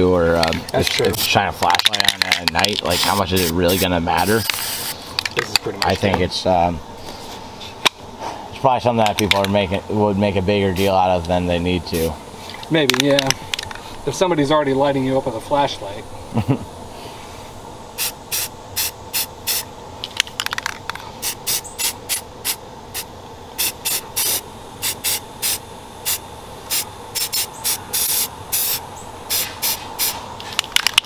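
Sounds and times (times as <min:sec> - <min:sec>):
spray can hissing: 0:02.2 - 0:05.0, 0:18.0 - 0:19.7, 0:21.2 - 0:30.9.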